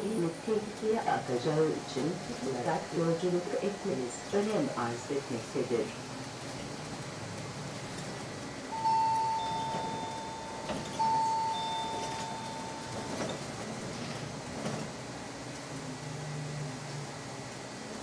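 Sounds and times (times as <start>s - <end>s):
bus humming in motion: 0.0s - 18.0s
two-note ding-dong chime: 8.7s - 13.2s.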